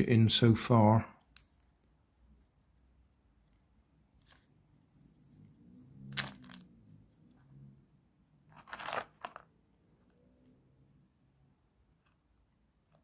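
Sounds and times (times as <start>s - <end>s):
plastic parts scraping crackles: 8.5s - 9.5s.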